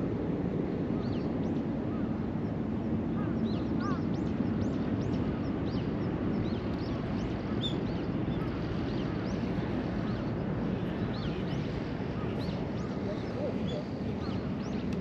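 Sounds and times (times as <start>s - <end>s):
small birds chirping: 3.2s - 15.0s.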